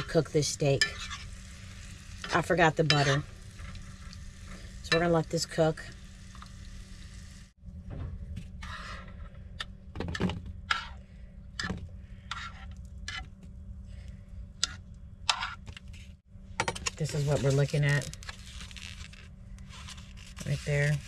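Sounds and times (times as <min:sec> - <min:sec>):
steady low hum: 0:00.0 - 0:21.0
metal ladle scraping a frying pan: 0:00.1 - 0:01.5, 0:02.3 - 0:04.0, 0:10.7 - 0:11.0
steak frying: 0:00.1 - 0:07.6.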